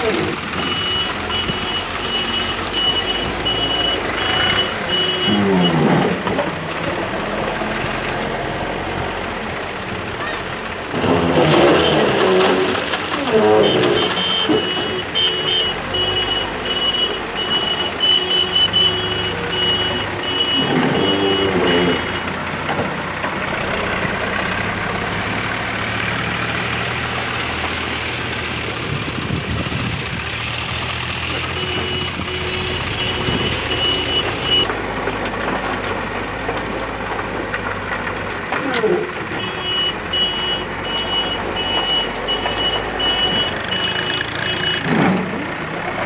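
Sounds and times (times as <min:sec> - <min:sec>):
diesel engine running: 0:00.0 - 0:46.0
reversing alarm beeping: 0:00.2 - 0:05.9, 0:13.6 - 0:22.3, 0:31.4 - 0:34.7, 0:39.3 - 0:44.9.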